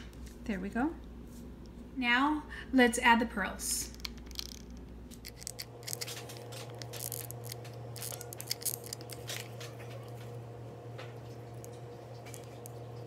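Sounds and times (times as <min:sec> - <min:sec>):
steady low hum: 0:00.0 - 0:13.0
seashells clicking and scraping: 0:03.9 - 0:10.2, 0:11.5 - 0:13.0.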